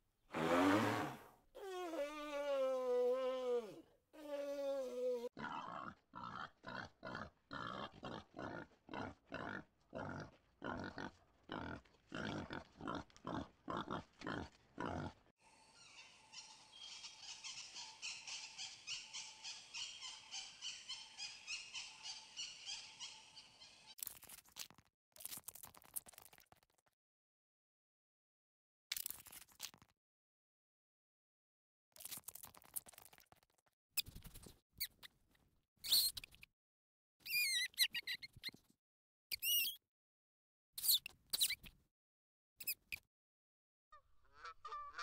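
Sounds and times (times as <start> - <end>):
guineafowl chattering: 15.8 - 23.9, 44.0 - 45.0.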